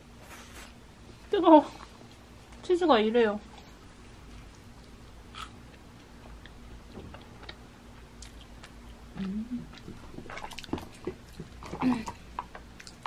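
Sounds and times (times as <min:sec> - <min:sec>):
person chewing: 0:03.6 - 0:13.0
person humming: 0:09.2 - 0:09.7.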